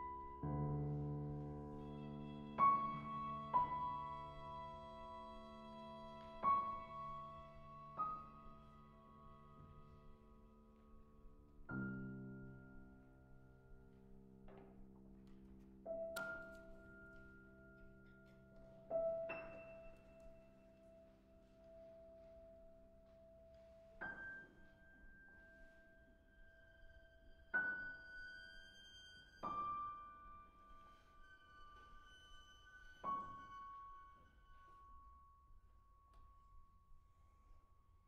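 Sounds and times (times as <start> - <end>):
piano chords and notes: 0.0 - 28.2.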